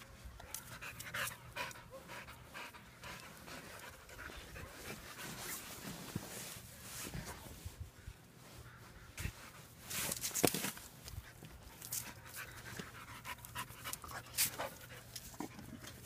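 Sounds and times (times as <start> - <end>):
dog panting: 0.7 - 5.3, 12.0 - 16.0.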